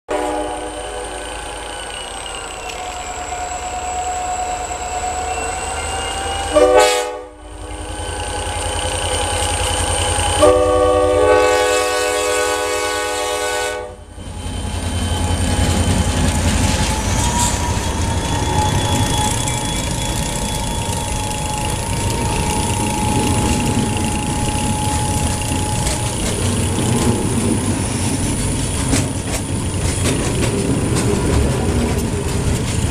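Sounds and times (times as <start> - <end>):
locomotive air horn blasts: 0.1 - 1.2, 6.4 - 7.6, 10.3 - 14.1
diesel locomotive engine passing: 0.1 - 32.9.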